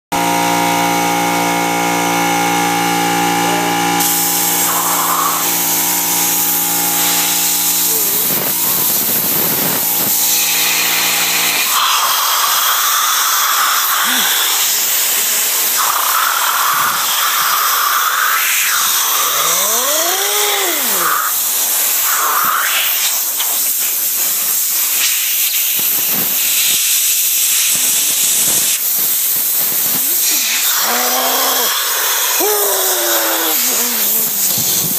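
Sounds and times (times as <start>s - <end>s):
compressed air blasting hiss: 33.1s - 34.9s.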